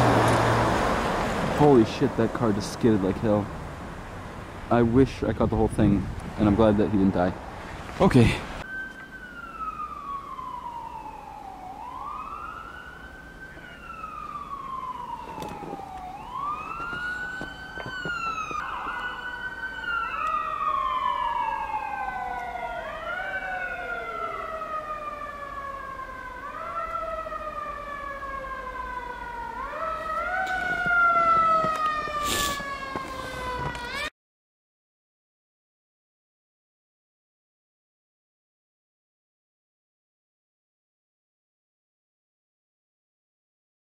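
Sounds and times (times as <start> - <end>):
sirens wailing: 8.5 - 34.1
lower-pitched siren: 8.6 - 34.1.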